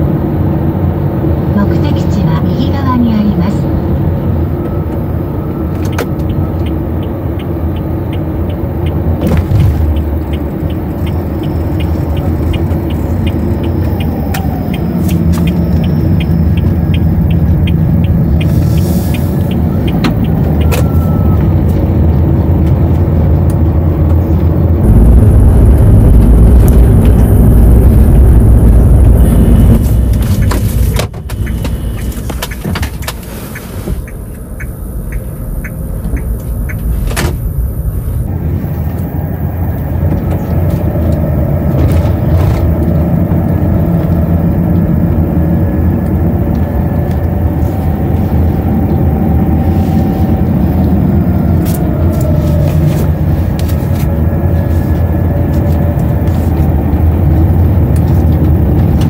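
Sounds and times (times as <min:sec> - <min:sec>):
car engine and tyre rumble: 0:00.0 - 0:59.0
light regular ticking: 0:06.2 - 0:09.2, 0:09.9 - 0:20.7, 0:29.0 - 0:38.0.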